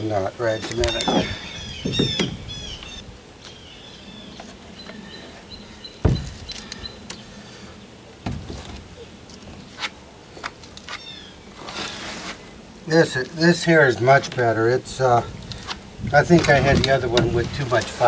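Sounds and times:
birds chirping: 0:00.0 - 0:09.7, 0:10.9 - 0:12.6
sharp knock: 0:06.0 - 0:06.5.

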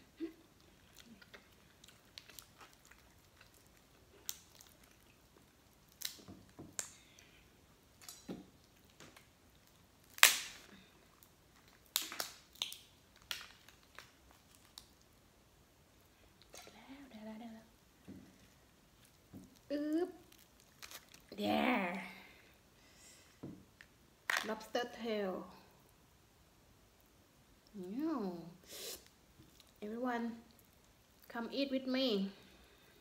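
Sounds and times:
person chewing with wet smacks: 0:00.4 - 0:07.4.

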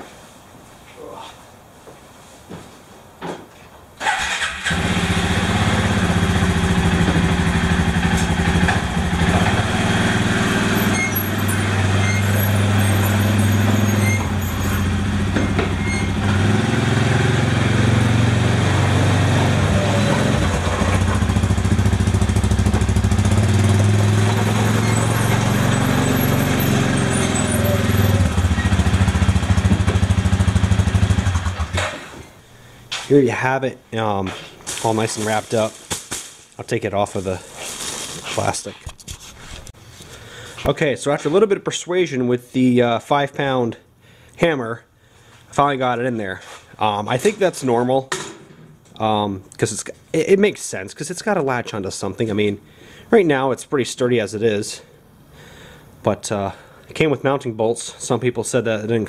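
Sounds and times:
atv engine running: 0:04.2 - 0:31.9.

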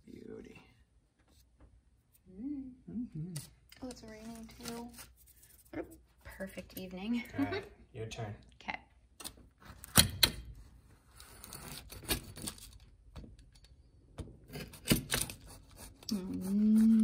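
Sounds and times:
woman speaking: 0:03.8 - 0:05.0, 0:05.8 - 0:07.7, 0:16.1 - 0:17.0.

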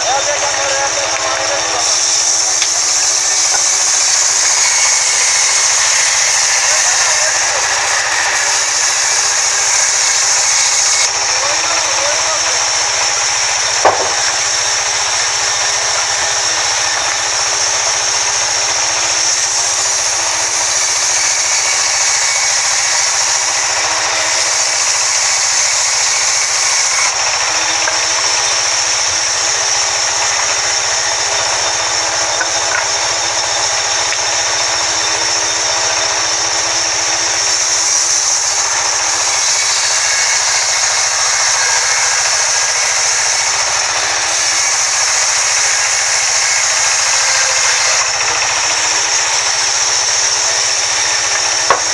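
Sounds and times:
band saw cutting log: 0:00.0 - 0:51.9
sharp knock: 0:13.8 - 0:14.4.

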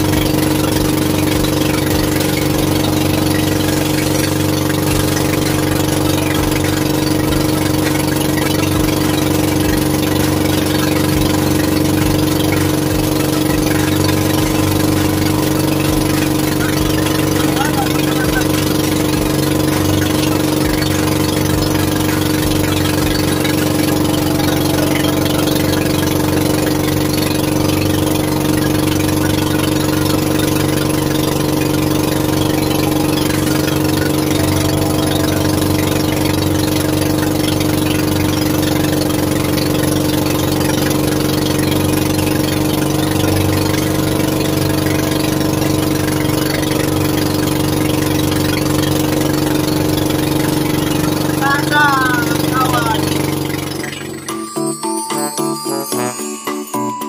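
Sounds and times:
boat engine humming: 0:00.0 - 0:57.0.

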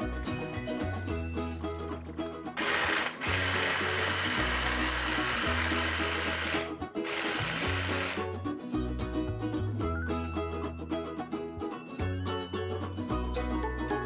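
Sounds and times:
electric blender chopping meat: 0:02.6 - 0:08.3.

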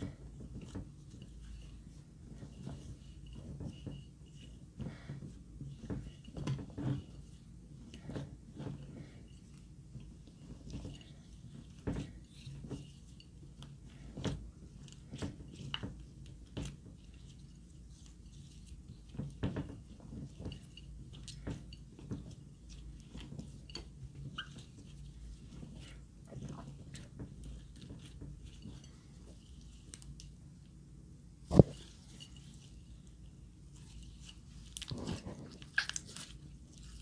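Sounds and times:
slime squishing: 0:31.5 - 0:37.0.

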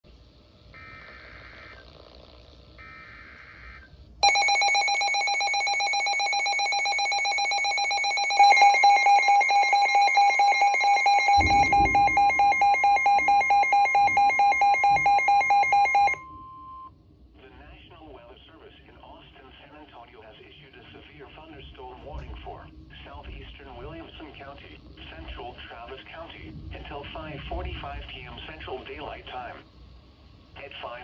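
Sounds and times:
loud pulsing alarm: 0:00.7 - 0:02.0, 0:02.8 - 0:16.9
rapid pulsing alarm beeps: 0:00.7 - 0:02.0, 0:02.8 - 0:16.9
screeching data bursts: 0:00.7 - 0:16.2
steady warning tone: 0:00.7 - 0:17.0.

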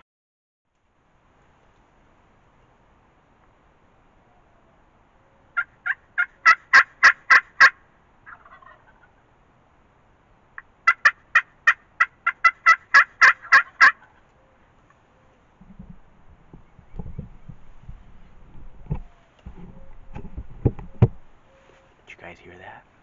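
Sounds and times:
turkey call yelps: 0:04.4 - 0:09.2, 0:10.8 - 0:15.4.

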